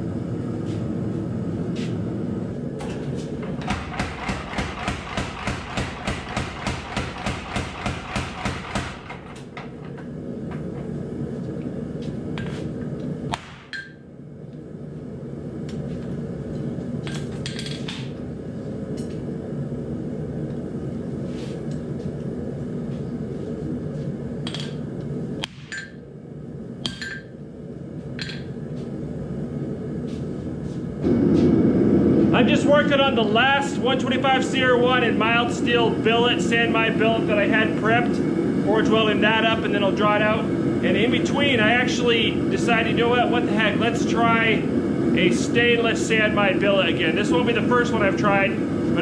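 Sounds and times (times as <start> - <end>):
power hammer pounding steel: 3.6 - 9.2.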